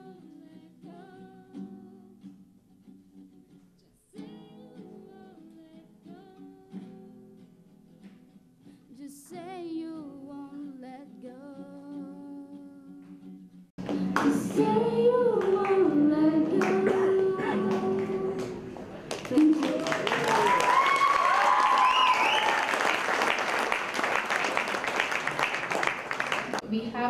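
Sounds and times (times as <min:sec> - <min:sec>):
women singing: 0:00.0 - 0:02.2, 0:08.9 - 0:13.1, 0:14.0 - 0:18.7.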